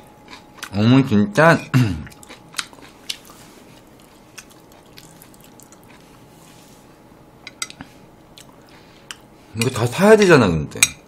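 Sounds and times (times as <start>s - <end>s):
person chewing food: 0.0s - 0.8s, 2.0s - 6.9s, 7.6s - 9.3s.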